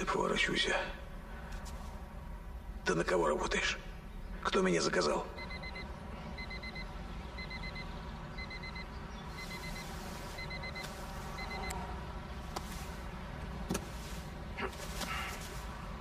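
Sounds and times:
high electronic beeps: 5.4s - 11.8s.

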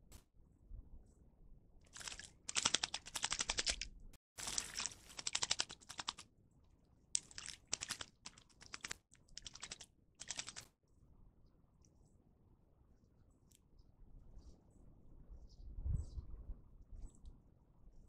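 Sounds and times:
bird splashing in water: 1.9s - 3.8s, 4.4s - 6.2s, 7.2s - 10.7s
bird wings fluttering: 1.9s - 6.2s, 7.2s - 10.7s.

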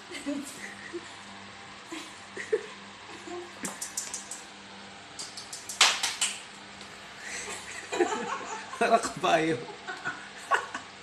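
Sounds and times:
dog shoes clicking on tiled floor: 3.6s - 4.4s.

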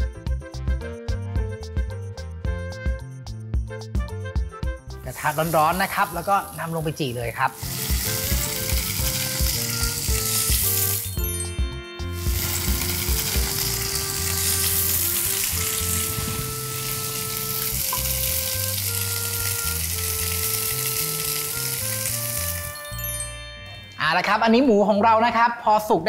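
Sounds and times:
meat sizzling on grill pan: 5.1s - 11.2s, 12.2s - 22.9s.

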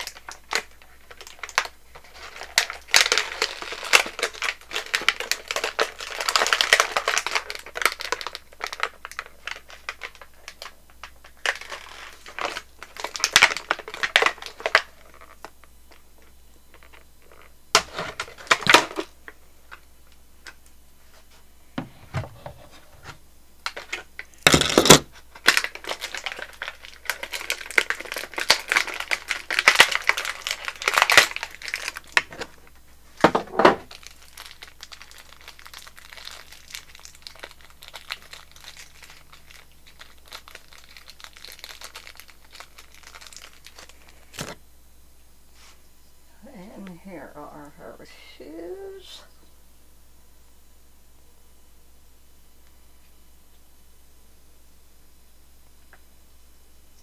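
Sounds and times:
sharp plastic crackle: 0.0s - 20.7s, 23.6s - 44.6s
plastic packaging crinkling: 0.0s - 21.3s, 22.2s - 44.6s.

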